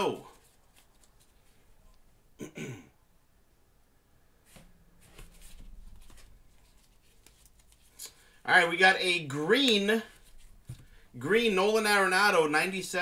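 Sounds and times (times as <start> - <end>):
cards rustling and clicking: 0.1 - 2.1, 4.5 - 8.4, 9.6 - 11.0.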